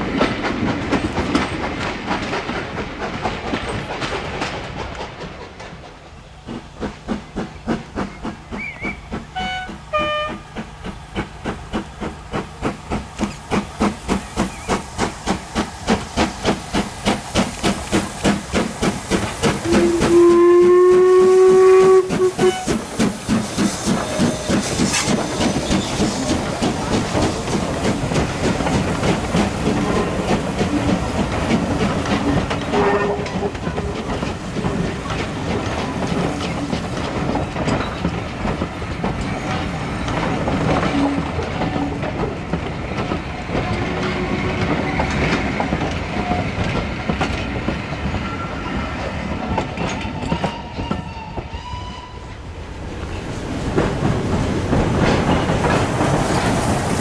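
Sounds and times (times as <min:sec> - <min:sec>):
wheels clicking over rail joints: 0:00.0 - 0:51.6, 0:52.3 - 0:57.0
rhythmic steam exhaust beat: 0:00.1 - 0:48.2
steam locomotive whistle: 0:08.6 - 0:10.5, 0:19.6 - 0:26.3, 0:32.7 - 0:34.0, 0:48.2 - 0:52.4.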